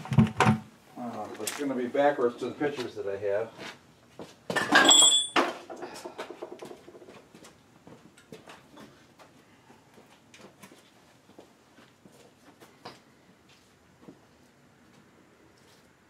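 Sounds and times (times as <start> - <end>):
metal parts clattering: 4.6 - 5.5
metallic ring: 4.6 - 5.5.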